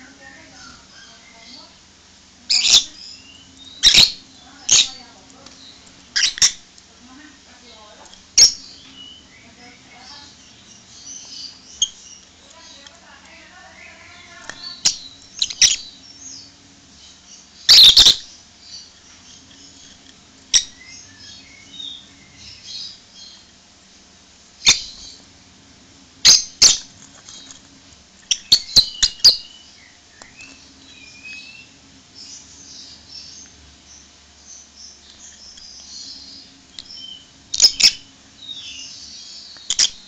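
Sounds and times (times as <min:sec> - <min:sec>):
beak clicking on seeds and dish: 0:02.5 - 0:16.5, 0:17.6 - 0:23.6, 0:26.2 - 0:31.7, 0:34.6 - 0:40.0
soft bird chirps: 0:02.5 - 0:23.6, 0:24.6 - 0:25.3, 0:28.2 - 0:40.0.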